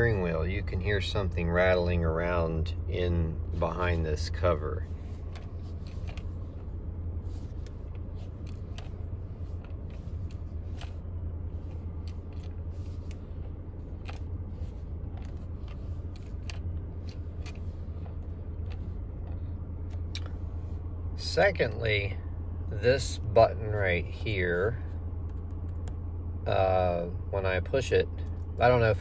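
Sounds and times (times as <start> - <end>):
steady low hum: 0.0 - 29.0
loose part rattling in steering wheel: 4.9 - 20.4.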